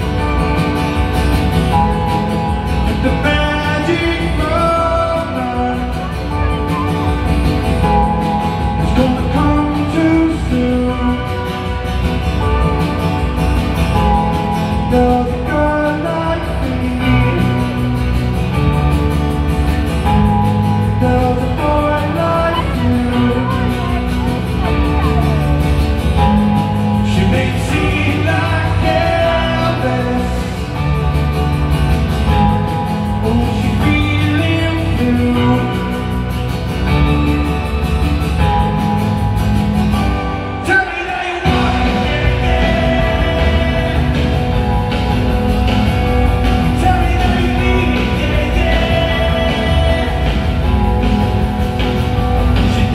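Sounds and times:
live rock band: 0.0 - 52.9
man singing: 1.7 - 7.0, 7.8 - 12.6, 14.0 - 18.1, 20.3 - 31.2, 33.0 - 36.4, 40.6 - 45.8, 46.4 - 51.6, 52.4 - 52.9.

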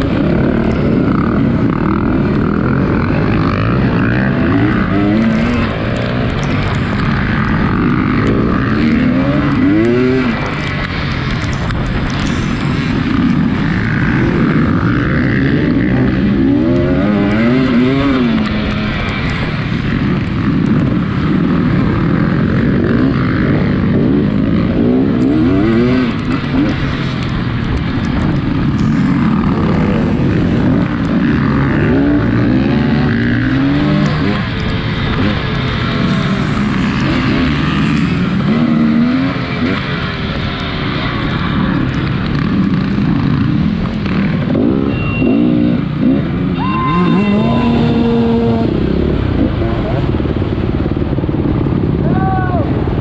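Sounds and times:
dirt bike engine revving: 0.0 - 50.4
steady rushing noise: 0.0 - 53.0.

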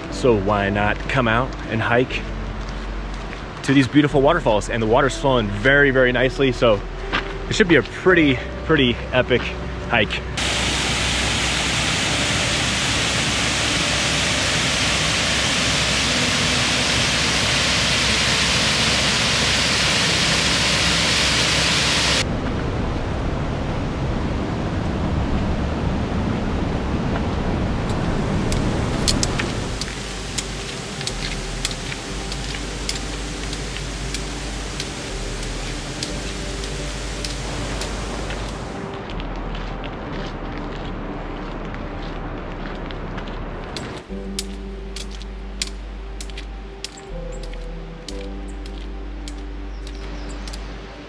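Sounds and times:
fast-flowing river rushing: 10.4 - 22.2, 27.6 - 38.9
light clicks: 43.8 - 50.7.

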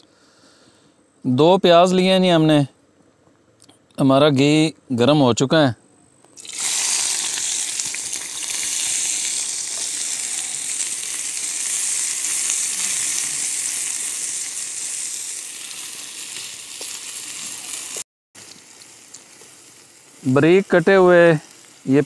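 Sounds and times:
onions sizzling in hot fat: 6.4 - 22.0.

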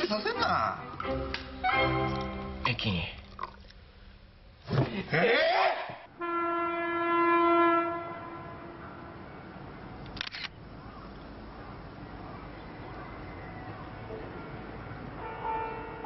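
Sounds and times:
train horn blast: 6.2 - 9.5, 15.2 - 16.0
camera shutter double click: 10.1 - 10.6.

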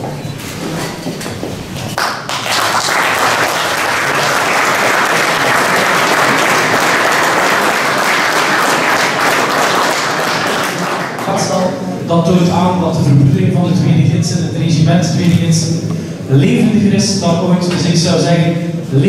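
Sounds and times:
audience applauding: 2.0 - 11.7.

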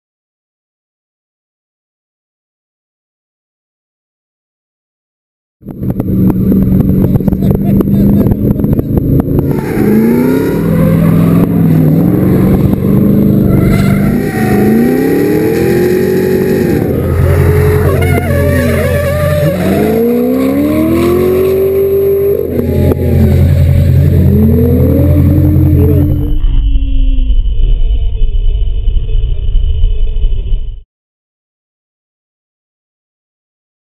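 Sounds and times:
car engine revving: 5.6 - 28.3.

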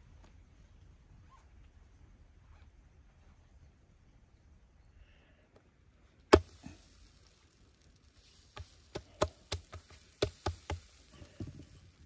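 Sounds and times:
hand slapping dough: 8.5 - 11.4.

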